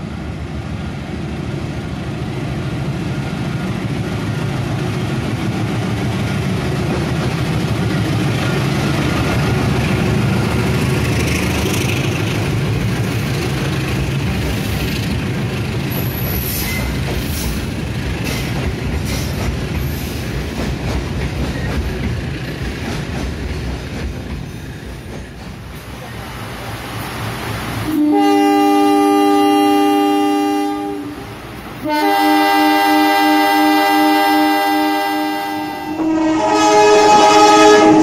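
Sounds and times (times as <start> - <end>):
diesel locomotive engine rumble: 0.0 - 38.0
train wheels clicking over rail joints: 3.4 - 26.2.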